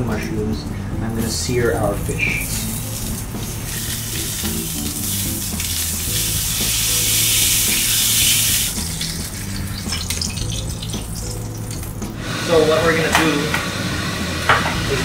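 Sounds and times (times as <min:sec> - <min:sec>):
fish sizzling in hot oil: 0:01.9 - 0:12.3.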